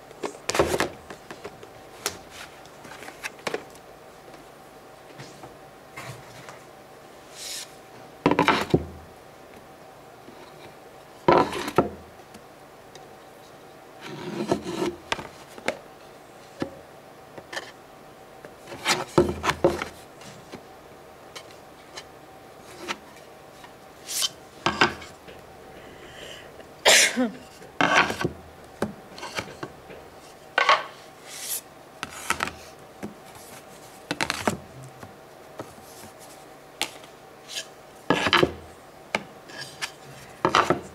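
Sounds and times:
wooden boards scraping: 14.0s - 15.0s.

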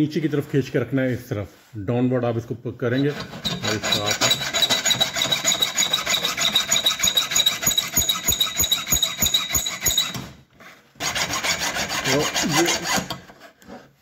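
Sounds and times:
hand file scraping saw blade: 3.0s - 14.0s.

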